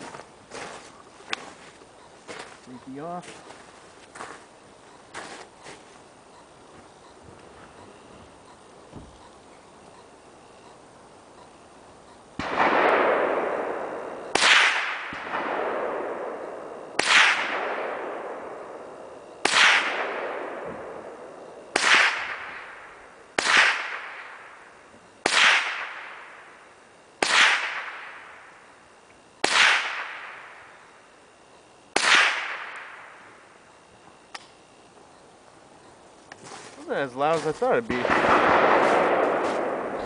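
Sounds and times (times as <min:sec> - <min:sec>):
rifle shots with echo: 0:12.4 - 0:26.6, 0:27.2 - 0:28.5, 0:29.4 - 0:30.9, 0:31.9 - 0:33.4, 0:37.7 - 0:40.0.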